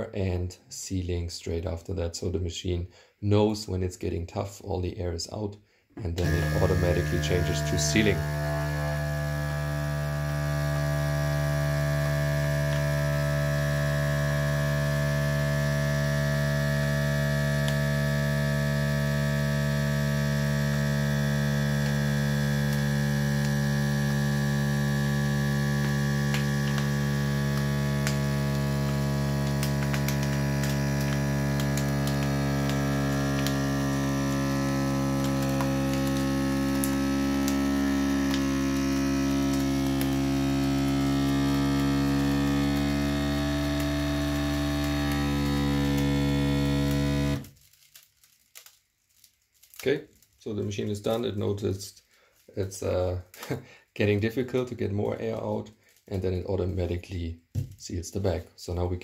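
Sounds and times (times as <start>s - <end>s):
vacuum sealer pump running: 6.0s - 47.7s
plastic bag crackling: 47.4s - 51.6s.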